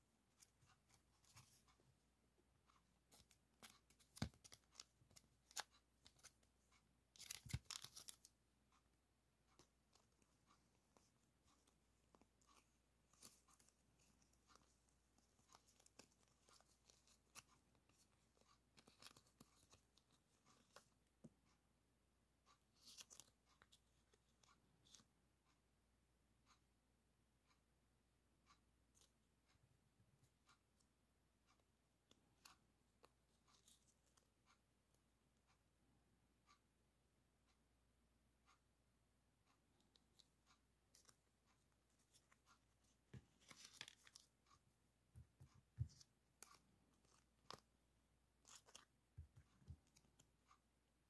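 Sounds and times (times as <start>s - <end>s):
plastic stickers crinkling: 7.2s - 8.3s, 48.4s - 50.2s.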